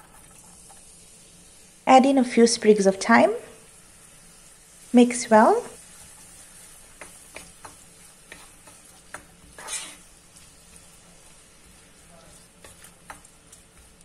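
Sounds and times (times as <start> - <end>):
onions sizzling in oil: 0.0 - 14.0
spoon scraping a pan: 5.8 - 14.0.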